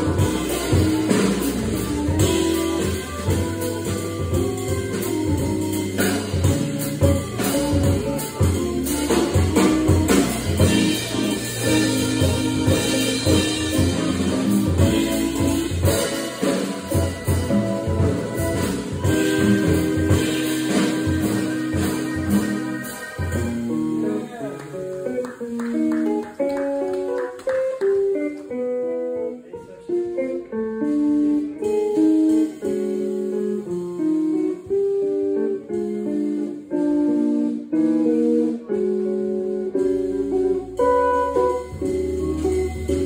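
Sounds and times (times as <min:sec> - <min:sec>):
drum hits: 0:00.0 - 0:24.5
low bass notes: 0:00.0 - 0:24.9, 0:29.9 - 0:43.0
electric jazz guitar: 0:00.0 - 0:43.0.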